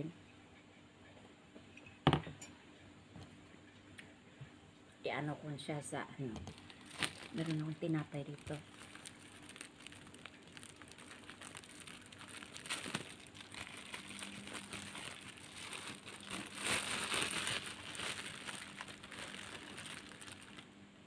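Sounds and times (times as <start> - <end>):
plastic bag crinkling: 6.4 - 20.7.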